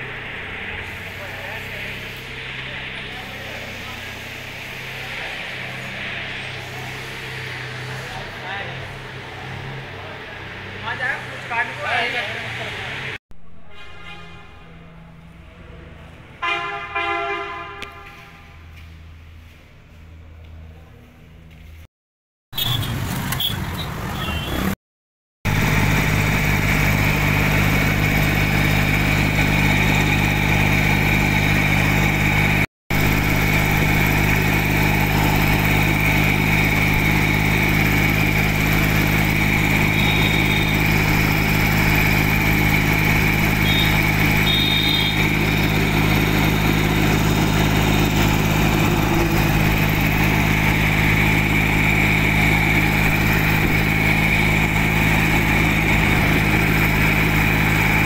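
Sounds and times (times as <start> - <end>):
tractor diesel engine running: 0.0 - 13.7, 25.4 - 58.0.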